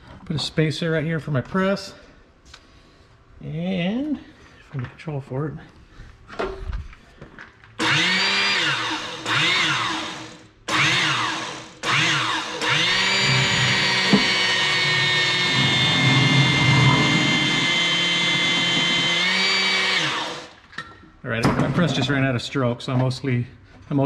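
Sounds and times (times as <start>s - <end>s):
hydraulic pump whining: 7.8s - 20.7s.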